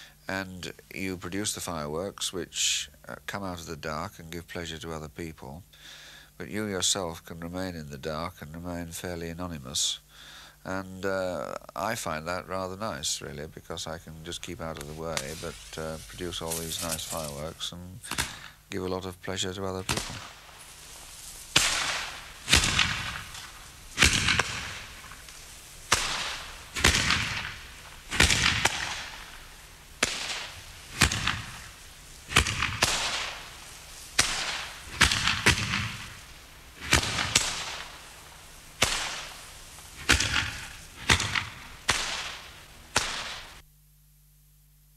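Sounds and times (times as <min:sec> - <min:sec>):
fireworks bursting: 0:12.4 - 0:43.6.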